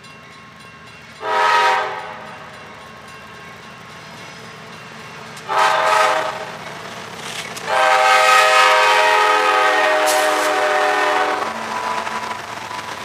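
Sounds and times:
freight train rumbling past: 0.0s - 13.0s
locomotive air horn blasts: 1.2s - 2.3s, 5.5s - 6.6s, 7.7s - 12.2s.

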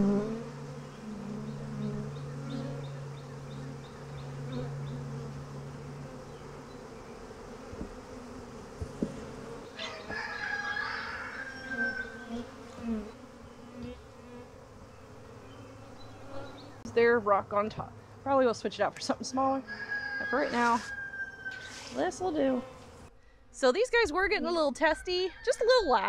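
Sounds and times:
bees buzzing: 0.0s - 23.1s
knocks on hive equipment: 7.7s - 8.0s, 8.8s - 9.3s
bird calling: 9.6s - 12.4s.

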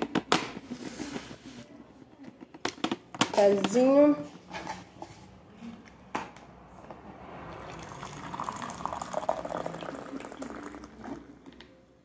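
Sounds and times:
coffee pouring into a mug: 7.5s - 11.6s.

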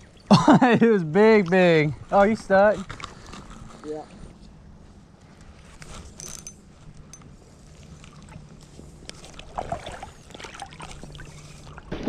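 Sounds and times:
steady low hum: 0.0s - 12.0s
creek water flowing and lapping: 7.4s - 12.0s.

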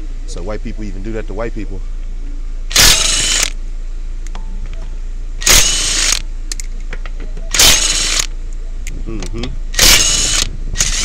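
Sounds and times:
impact wrench hammering: 2.7s - 3.5s, 5.4s - 6.2s, 7.5s - 8.3s, 9.8s - 11.0s.

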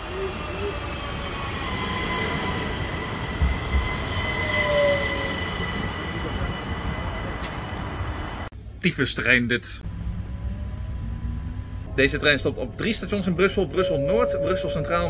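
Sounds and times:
train rolling rumble: 0.0s - 8.6s
high-pitched whine: 9.9s - 15.0s.

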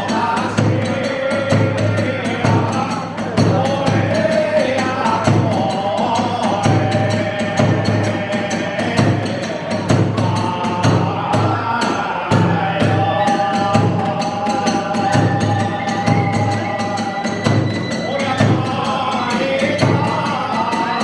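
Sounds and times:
big drum beating: 0.0s - 21.0s
bamboo flute long high notes: 12.5s - 19.9s.

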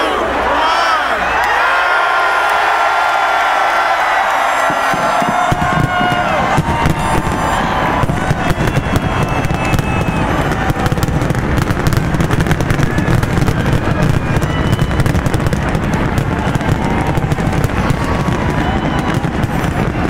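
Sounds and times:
fireworks crackling pops: 4.6s - 20.0s
low rumble of fireworks booms: 4.6s - 20.0s.

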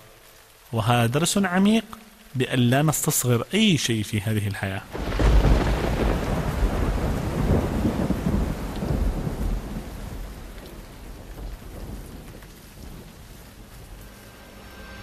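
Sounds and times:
steady rain: 0.0s - 15.0s
low thunder rumbling: 4.9s - 15.0s.

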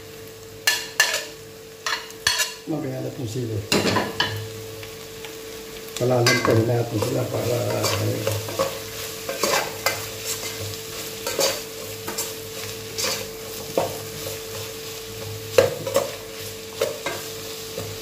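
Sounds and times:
food sizzling in oil: 0.0s - 18.0s
spoon scraping a pot: 1.9s - 2.6s, 7.7s - 14.7s.

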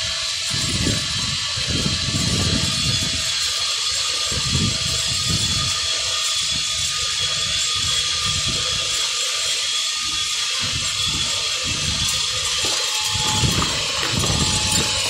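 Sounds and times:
conveyor machine hiss: 0.0s - 15.0s
faint whining tones: 9.8s - 15.0s.

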